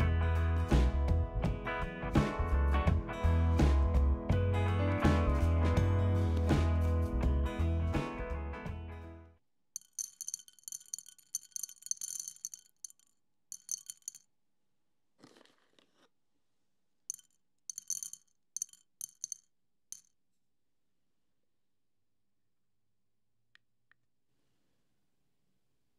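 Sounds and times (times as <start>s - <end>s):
metallic clinking and jingling: 9.8s - 14.3s, 17.1s - 20.1s.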